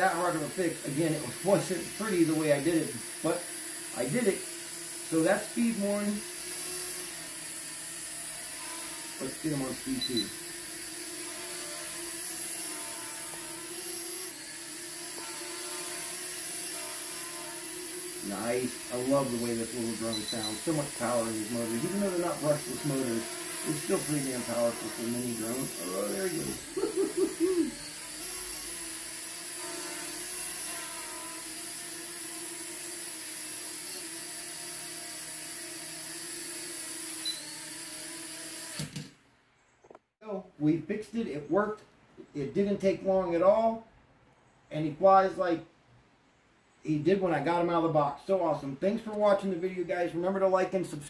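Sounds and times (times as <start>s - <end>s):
drone propellers whirring: 0.0s - 38.8s
quadcopter buzzing hum: 0.0s - 39.1s.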